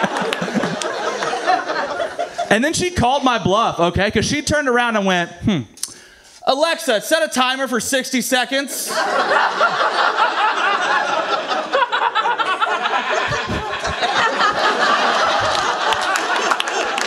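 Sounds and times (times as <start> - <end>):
audience laughing: 0.0 - 2.6, 8.7 - 17.0.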